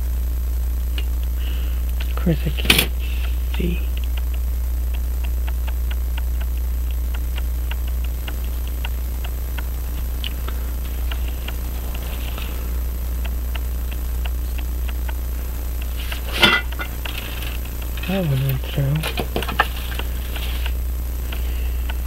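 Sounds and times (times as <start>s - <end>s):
steady low hum: 0.0s - 22.0s
clock ticking: 3.2s - 11.6s.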